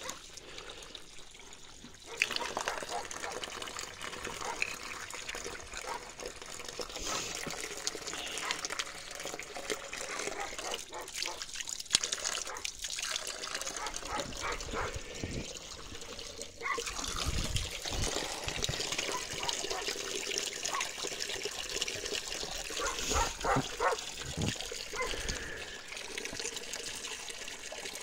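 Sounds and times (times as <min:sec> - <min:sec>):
water trickling: 0:00.0 - 0:28.0
plastic jugs knocking: 0:23.4 - 0:24.5.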